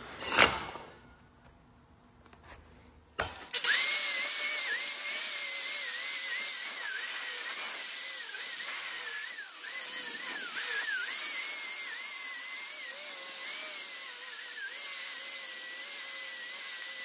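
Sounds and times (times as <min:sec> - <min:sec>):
angle grinder wire wheel whining: 0:03.5 - 0:17.0.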